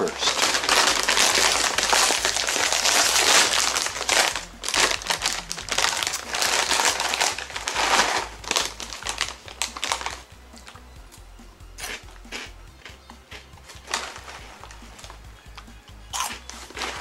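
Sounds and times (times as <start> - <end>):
plastic snack bag crinkling: 0.0 - 10.8, 11.8 - 17.0.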